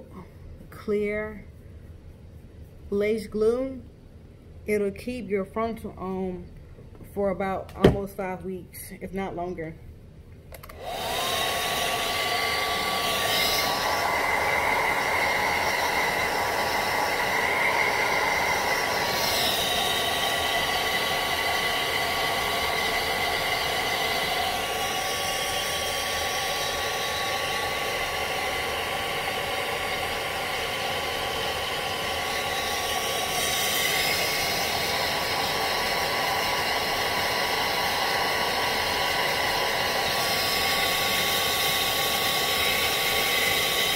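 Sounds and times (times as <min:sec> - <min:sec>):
hair dryer running: 0:10.6 - 0:43.9.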